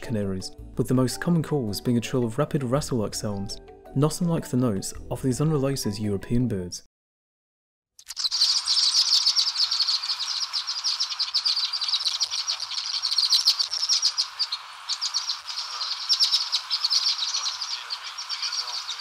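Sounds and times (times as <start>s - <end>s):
songbird rattling trills: 8.0s - 19.0s.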